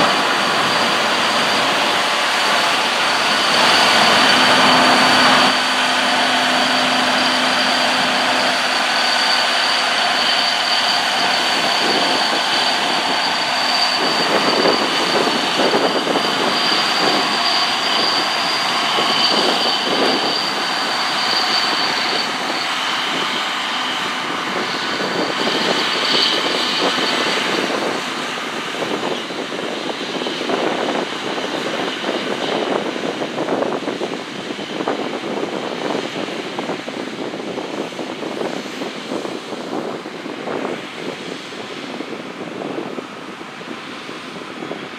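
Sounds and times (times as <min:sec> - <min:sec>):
tractor diesel engine running: 0:00.0 - 0:29.5
steady high whine: 0:00.0 - 0:44.9.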